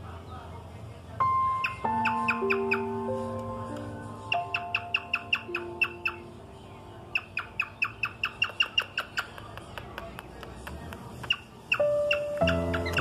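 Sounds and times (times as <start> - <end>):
cockatiel chirping: 1.4 - 3.0, 4.2 - 6.4, 7.1 - 9.9, 11.2 - 13.0.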